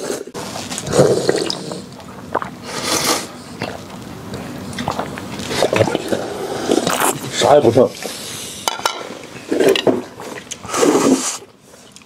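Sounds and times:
person slurping soup: 0.0s - 3.8s, 4.9s - 7.4s, 10.6s - 11.5s.

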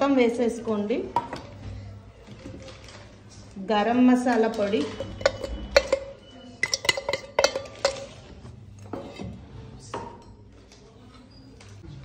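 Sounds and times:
soft stirring: 4.3s - 11.3s
steel cup clinking on bowl: 4.8s - 8.2s.

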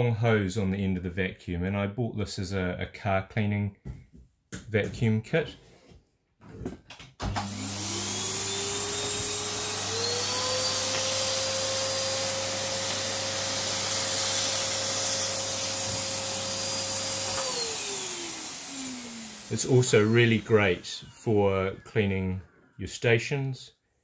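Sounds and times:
vacuum cleaner motor whine: 7.2s - 21.8s.

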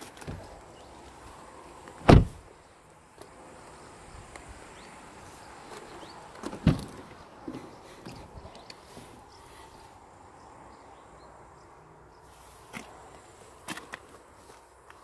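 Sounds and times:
car doors shutting with thud: 2.0s - 2.4s, 6.4s - 7.6s.

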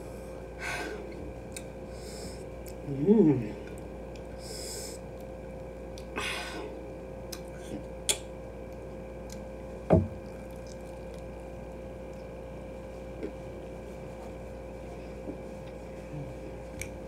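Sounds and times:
bite thump: 9.9s - 10.3s.

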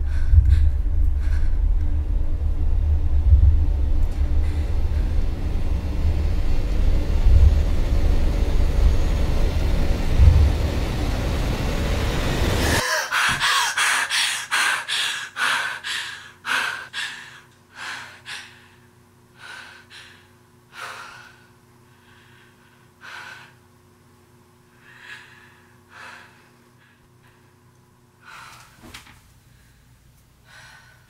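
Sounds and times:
woman breathing rapidly: 0.0s - 2.2s, 4.2s - 5.4s, 12.6s - 23.7s, 24.7s - 31.0s
loud low rumble: 0.0s - 12.8s.

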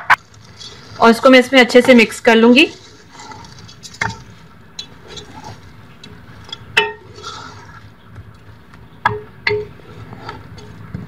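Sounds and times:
wooden spoon stirring in a pot: 0.2s - 11.0s
spoon knocking against pot: 6.8s - 7.0s, 9.0s - 9.8s.

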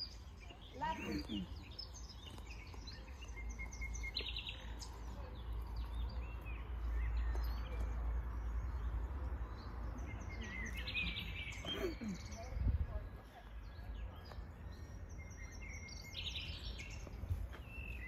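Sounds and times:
small birds chirping: 0.0s - 18.0s
bird trill: 14.6s - 18.0s.

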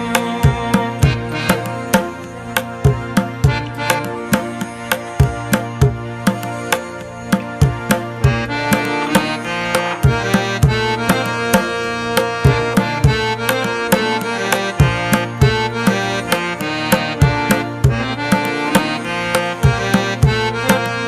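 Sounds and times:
melodic instrument: 0.0s - 21.0s
drum beat: 12.4s - 19.0s.

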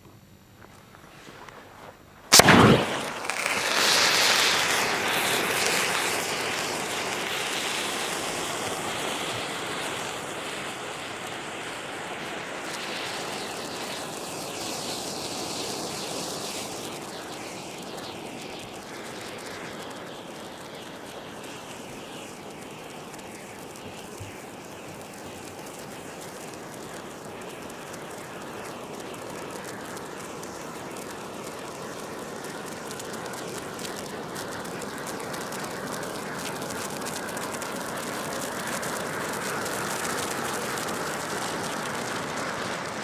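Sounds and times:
burning flare hissing: 1.0s - 43.0s
flare igniting bang: 2.3s - 10.2s, 12.4s - 28.8s.

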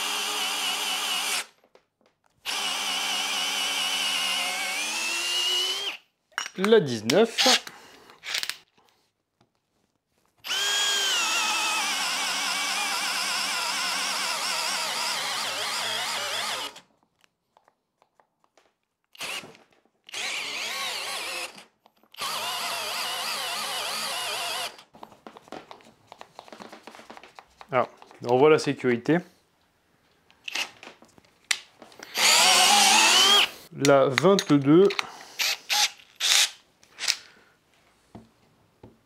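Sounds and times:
cordless drill boring into wood: 0.0s - 1.6s, 2.4s - 6.0s, 10.4s - 16.8s, 19.2s - 24.9s, 30.5s - 30.8s, 32.0s - 33.6s, 35.0s - 37.2s.

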